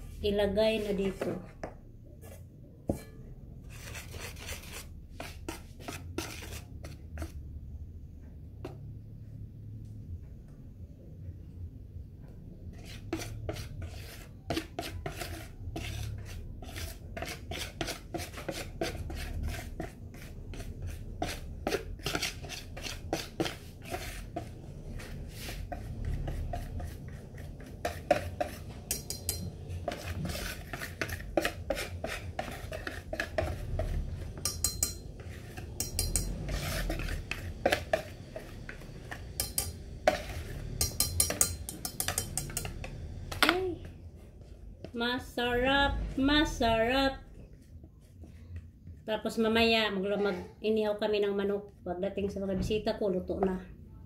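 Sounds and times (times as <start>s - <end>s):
whisk scraping plastic bowl: 3.7s - 7.4s, 12.7s - 43.0s.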